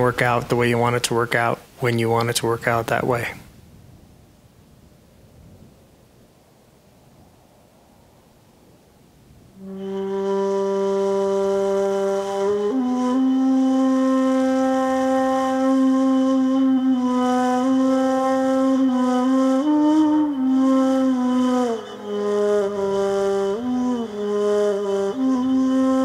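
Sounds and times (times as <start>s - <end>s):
faint hiss: 0.0s - 26.0s
wind instrument long notes: 9.6s - 26.0s.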